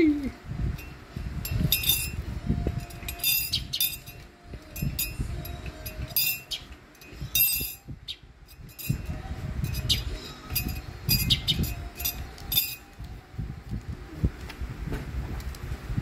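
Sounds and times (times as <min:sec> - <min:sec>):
spoon clinking against a mug: 0:02.8 - 0:07.9, 0:08.5 - 0:12.9.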